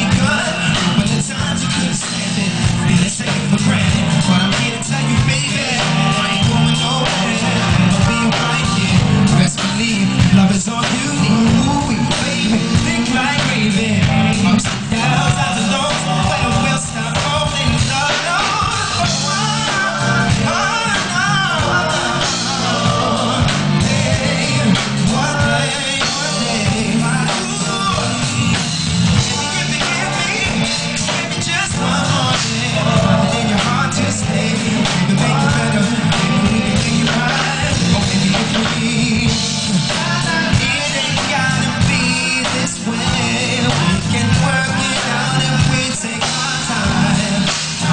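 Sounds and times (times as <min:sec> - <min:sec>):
bass line: 0:00.0 - 0:47.9
drums: 0:00.0 - 0:47.9
live band: 0:00.0 - 0:47.9
man singing into microphone: 0:00.0 - 0:47.9.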